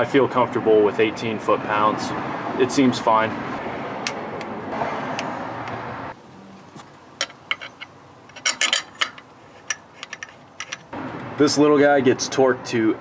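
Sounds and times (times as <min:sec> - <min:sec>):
steady background noise: 0:01.7 - 0:13.0
steel parts clinking: 0:07.2 - 0:10.9.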